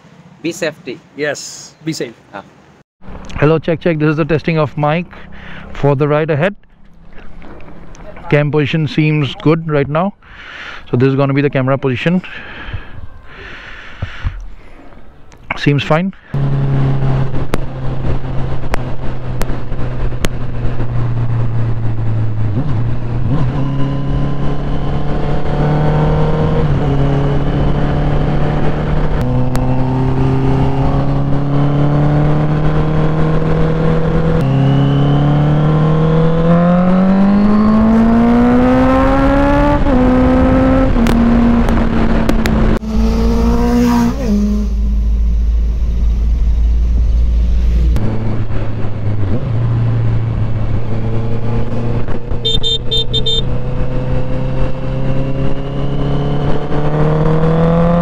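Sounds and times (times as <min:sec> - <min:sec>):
motorcycle engine accelerating: 0:16.2 - 0:58.0
wind rumble on microphone: 0:17.0 - 0:25.5.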